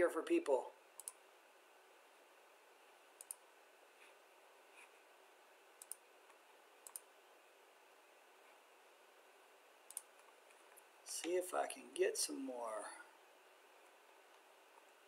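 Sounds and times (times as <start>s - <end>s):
computer mouse clicking: 1.0s - 1.2s, 3.2s - 3.4s, 5.8s - 7.1s, 9.9s - 11.4s.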